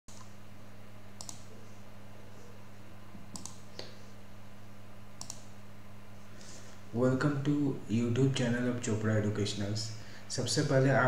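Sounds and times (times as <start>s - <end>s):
steady low hum: 0.1s - 11.0s
computer mouse clicking: 1.2s - 1.5s, 3.3s - 3.6s, 5.2s - 5.5s.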